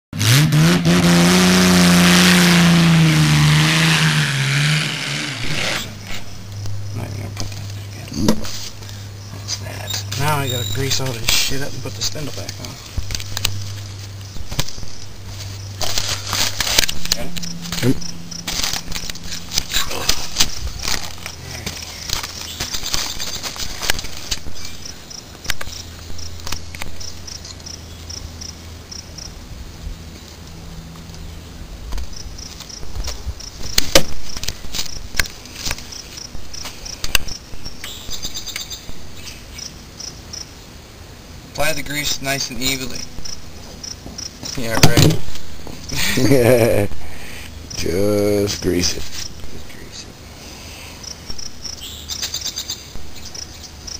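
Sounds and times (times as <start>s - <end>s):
car engine revving: 0.2s - 7.9s, 10.9s - 22.2s.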